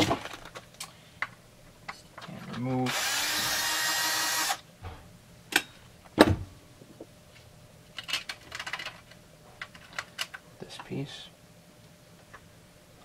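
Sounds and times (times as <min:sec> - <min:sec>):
cordless drill spinning: 0:02.9 - 0:04.6
knock of parts set down: 0:04.8 - 0:06.5.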